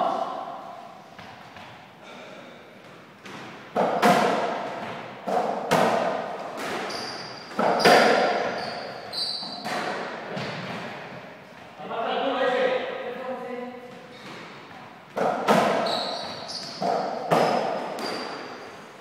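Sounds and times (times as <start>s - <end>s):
ball struck by rackets: 3.2s - 8.5s, 15.1s - 15.9s, 16.5s - 18.5s
short high squeaks: 6.9s - 9.7s, 15.8s - 18.6s.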